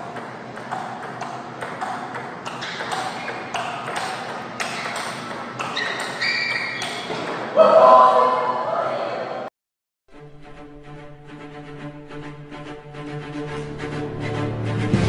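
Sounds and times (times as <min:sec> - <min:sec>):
ping-pong ball hitting paddles and table: 0:00.0 - 0:07.6.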